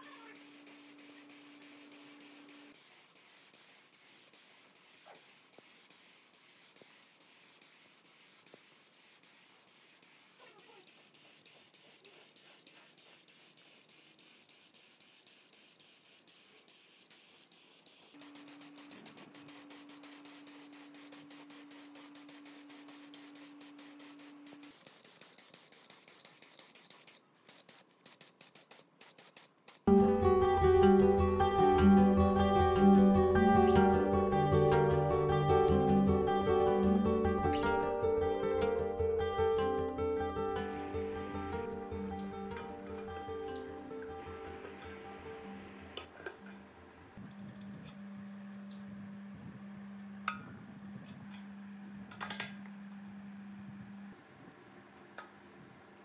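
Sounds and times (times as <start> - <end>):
paint spray gun hissing: 0.0 - 30.0, 40.6 - 46.6
low steady hum: 40.6 - 56.0.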